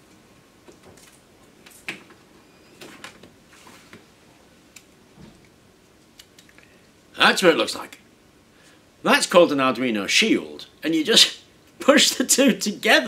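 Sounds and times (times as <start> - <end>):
soft rustles of handling: 0.7 - 4.2.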